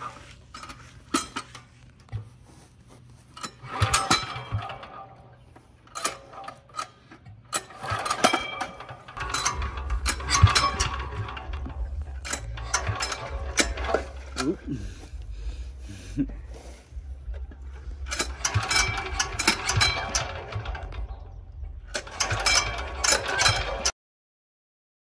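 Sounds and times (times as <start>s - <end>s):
pull-starter clicking and rattling: 3.3s - 23.9s
low rumble: 9.0s - 23.1s.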